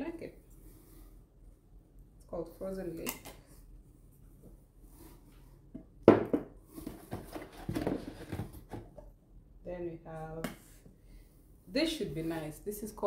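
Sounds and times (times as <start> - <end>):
glass jar knocking on hard surface: 6.1 - 6.5.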